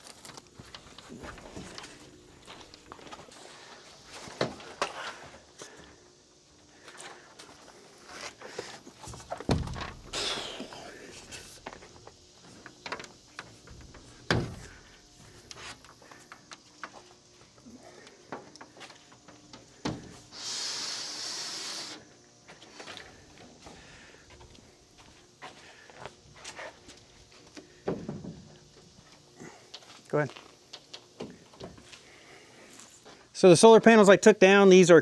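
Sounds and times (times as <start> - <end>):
hissing scrape: 20.3 - 22.1.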